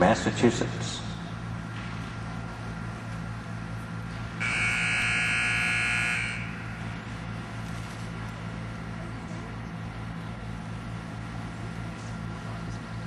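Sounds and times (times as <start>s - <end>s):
low steady hum: 0.0s - 13.0s
buzzer steady tone: 4.4s - 7.0s.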